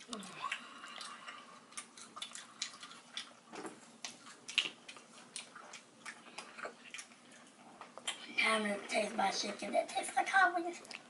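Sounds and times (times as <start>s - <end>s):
person chewing: 0.0s - 8.3s.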